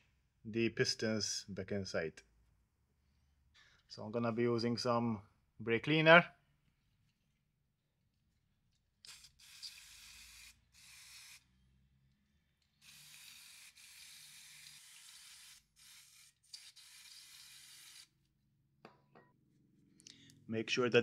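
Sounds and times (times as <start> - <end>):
aerosol spray hissing: 9.4 - 11.4.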